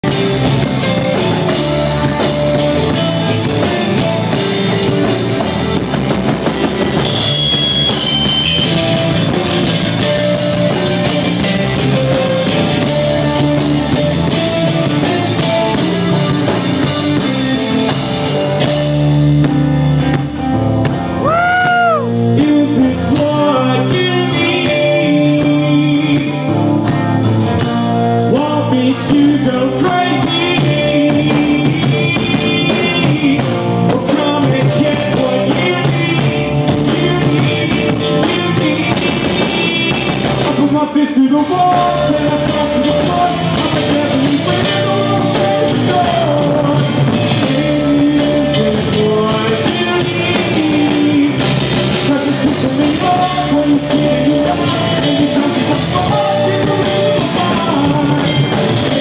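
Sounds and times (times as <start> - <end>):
drum kit: 0.0 - 59.0
electric guitar: 0.0 - 59.0
person singing: 21.2 - 26.8, 28.2 - 59.0.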